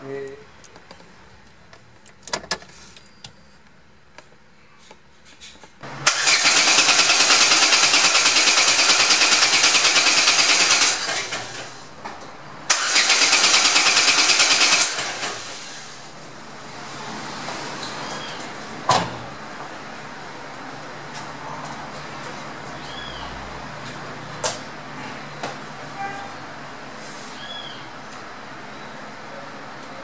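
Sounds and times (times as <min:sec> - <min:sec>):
starter motor cranking engine: 0:06.0 - 0:11.8, 0:12.7 - 0:16.0.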